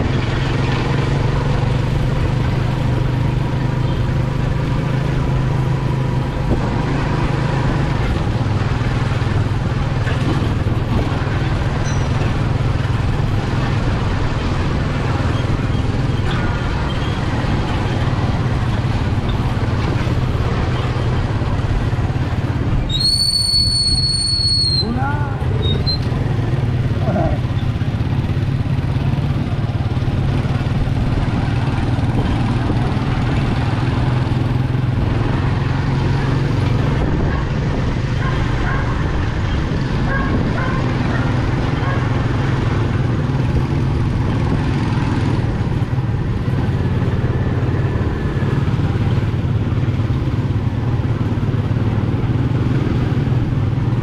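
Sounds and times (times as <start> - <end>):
motorcycle engine running: 0.0 - 54.0
high whistle-like tone: 22.9 - 25.0.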